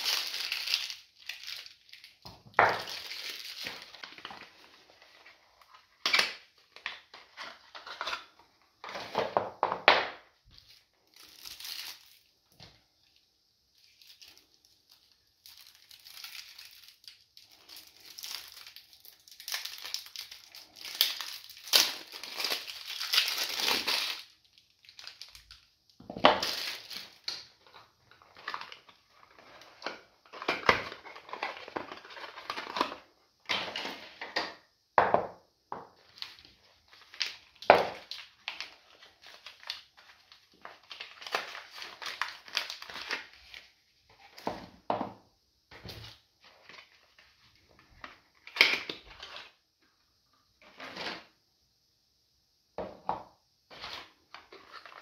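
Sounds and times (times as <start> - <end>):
plastic wrappers crinkling: 0.0 - 9.3, 10.5 - 12.4, 13.0 - 34.2, 35.9 - 44.6, 53.7 - 55.0.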